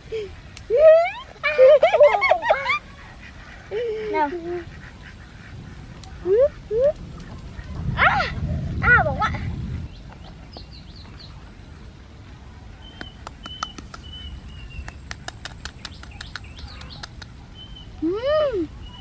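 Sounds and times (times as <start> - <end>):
small birds chirping: 9.5 - 19.0.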